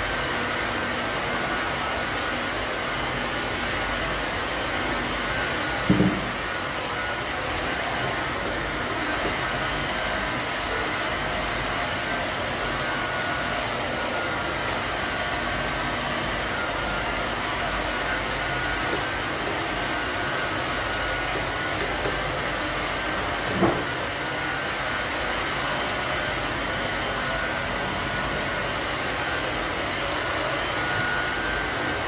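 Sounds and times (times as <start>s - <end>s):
scissors snipping fur: 7.0s - 9.7s, 18.5s - 20.0s.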